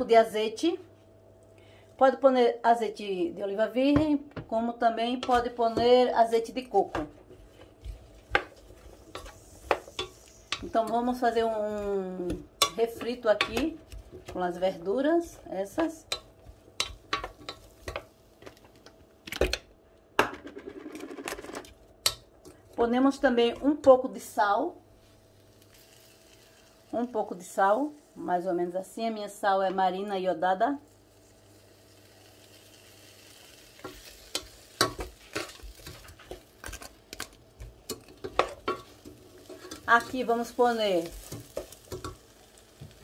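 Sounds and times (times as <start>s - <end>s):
wooden spoon stirring in a pot: 4.5s - 18.9s, 33.7s - 43.0s
wooden spoon knocking on pot: 11.7s - 14.5s, 15.7s - 18.1s
vegetables sauteing in oil: 22.8s - 29.4s, 30.4s - 43.0s.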